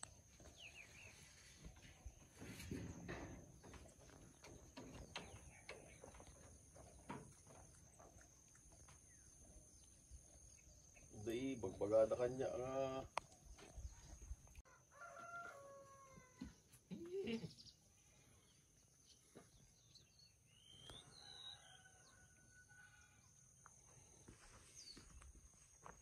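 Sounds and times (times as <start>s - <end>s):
rooster crowing: 14.7s - 16.6s, 21.0s - 23.1s.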